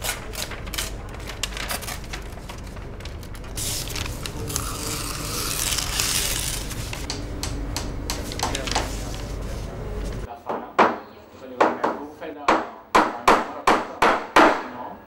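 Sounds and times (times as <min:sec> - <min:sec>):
paper clicks and scrapes: 0:00.0 - 0:07.2, 0:08.1 - 0:10.3
paper rustling: 0:00.0 - 0:07.2, 0:08.1 - 0:10.3.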